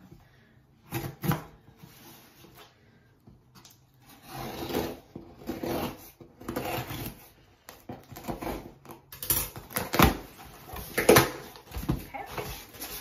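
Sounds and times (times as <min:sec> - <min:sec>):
cardboard box rustling and scraping: 0:10.3 - 0:13.0.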